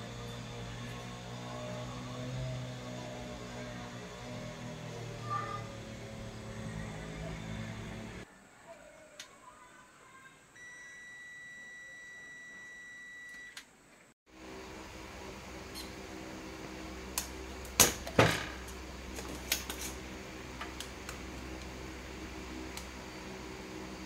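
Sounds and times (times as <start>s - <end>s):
low hum: 0.0s - 8.2s
multimeter continuity beep: 10.6s - 13.6s.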